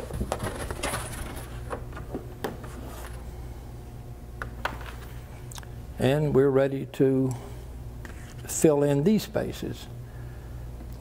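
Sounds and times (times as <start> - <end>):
hands tapping and rustling boards: 0.0 - 3.2
steady low hum: 0.0 - 11.0.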